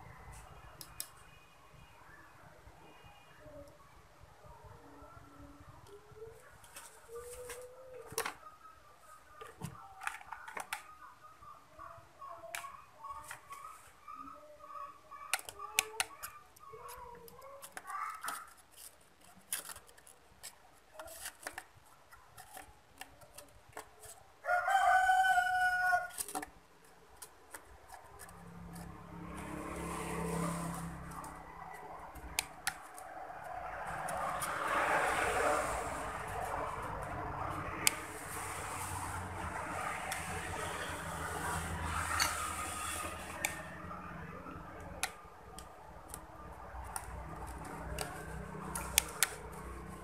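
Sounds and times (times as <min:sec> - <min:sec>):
rooster crowing: 0:24.4 - 0:26.2.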